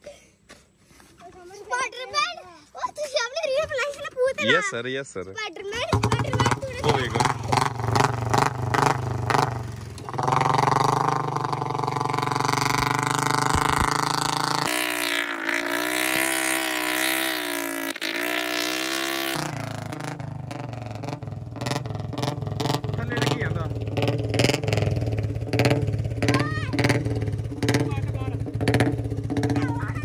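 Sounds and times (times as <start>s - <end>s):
motorcycle engine running: 5.8s - 30.0s.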